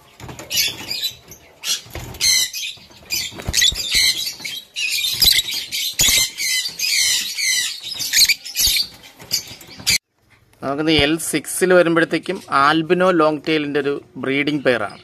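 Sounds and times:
lovebirds squawking: 0.4 - 10.0.

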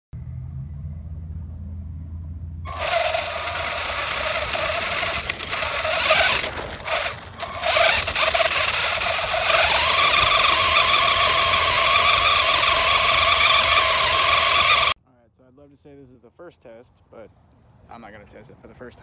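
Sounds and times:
toy truck electric motor whining: 2.7 - 15.0.

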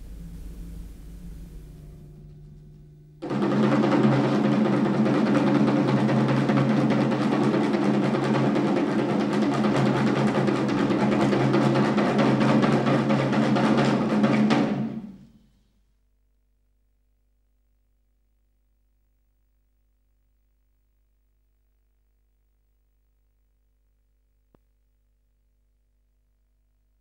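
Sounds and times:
loud drum roll: 0.0 - 15.5.

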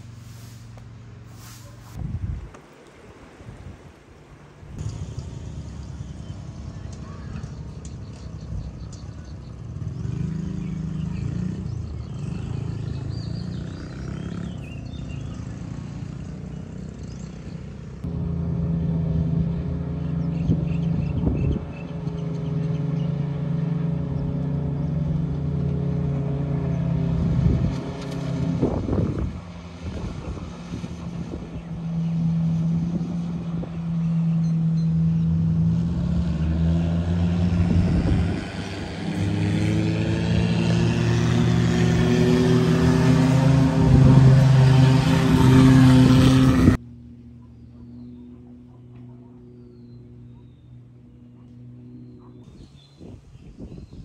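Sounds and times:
vehicle engine running: 0.0 - 3.1, 4.2 - 53.4.

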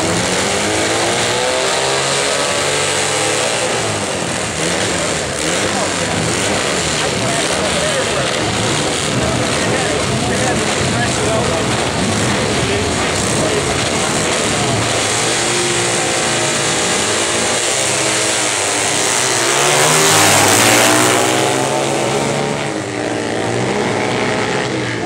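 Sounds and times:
motorcycles accelerating hard: 0.0 - 25.0.

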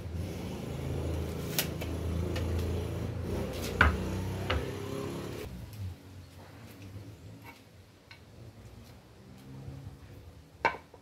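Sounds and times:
wooden boards knocking: 3.8 - 4.8.

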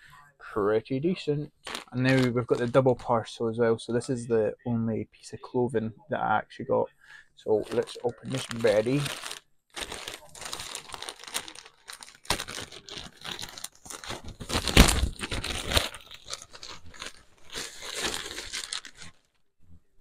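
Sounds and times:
packaging tearing and crinkling: 1.6 - 2.8, 7.6 - 19.3.

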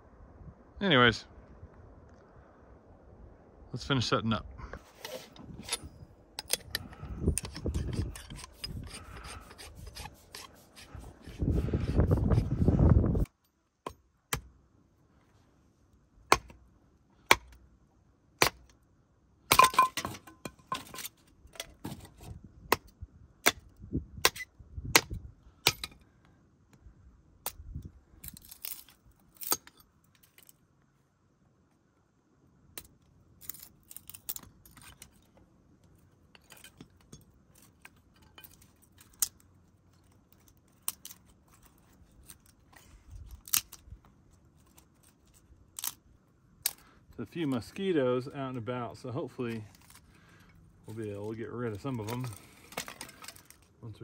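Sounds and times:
wood scraping: 4.8 - 13.3
hatchet striking wood: 13.8 - 14.5, 16.3 - 16.6, 17.3 - 17.6, 18.4 - 18.6, 25.0 - 25.9.

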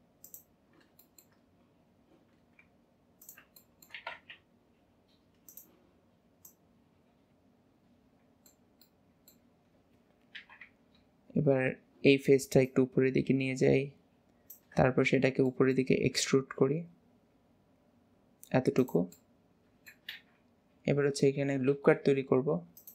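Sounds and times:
mouse and keyboard clicks: 0.2 - 1.4, 2.6 - 4.4, 5.4 - 5.7, 10.2 - 10.8.

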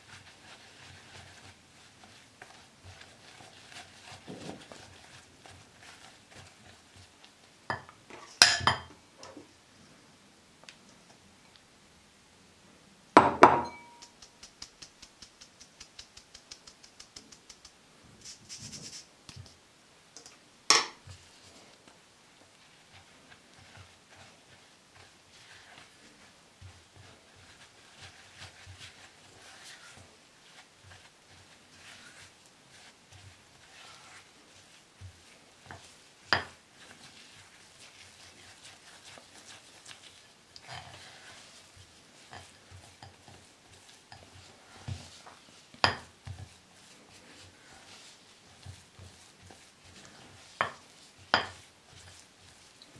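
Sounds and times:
flour rustling: 0.0 - 8.8, 13.9 - 19.6, 21.0 - 52.9
spatula mixing dough: 0.0 - 9.5, 13.7 - 52.9
sieve knocking on glass bowl: 13.2 - 14.1.

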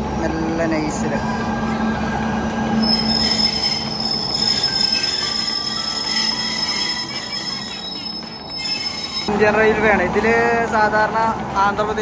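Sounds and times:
freight train rumbling: 0.0 - 12.0
train wheels squealing: 2.8 - 9.3.

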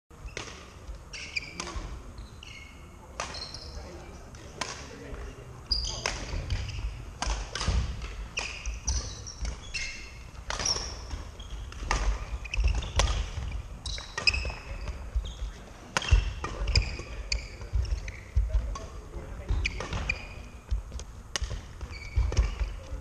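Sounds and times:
shoes squeaking on wooden floor: 0.2 - 3.9, 5.7 - 7.1, 8.1 - 23.0
racket hitting shuttlecock: 0.3 - 1.9, 6.0 - 15.0, 15.9 - 19.0, 19.6 - 22.8.

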